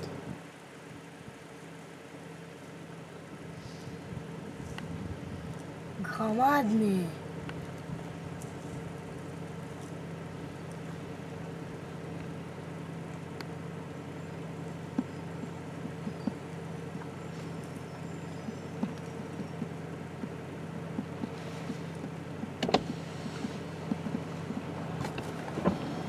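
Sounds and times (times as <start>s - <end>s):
steady engine-like hum: 0.0s - 26.0s
elk chewing leaves and twigs: 7.4s - 13.5s, 14.8s - 26.0s.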